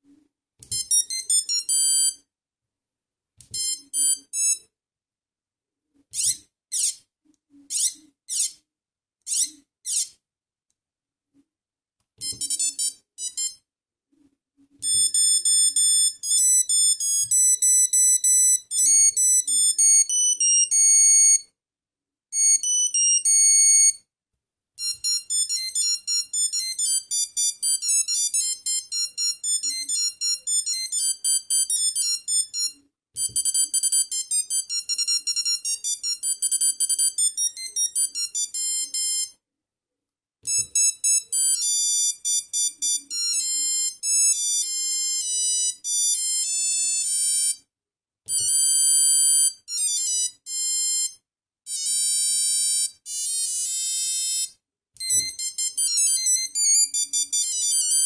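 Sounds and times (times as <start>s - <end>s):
mobile phone ringtone melodies: 0.7s - 2.2s, 12.2s - 13.6s, 14.8s - 21.4s, 22.4s - 24.0s, 24.8s - 39.4s, 40.5s - 47.6s, 48.3s - 58.0s.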